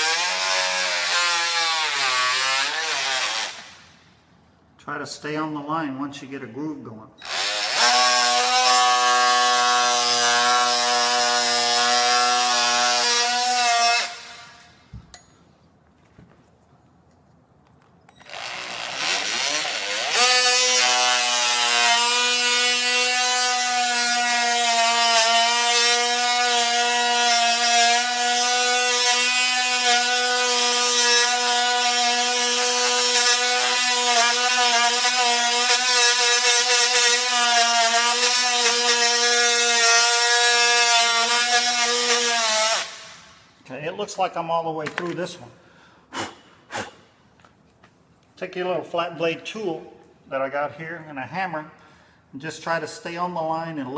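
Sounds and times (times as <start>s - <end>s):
oscillating multi-tool whine: 7.2s - 15.3s, 18.1s - 43.4s.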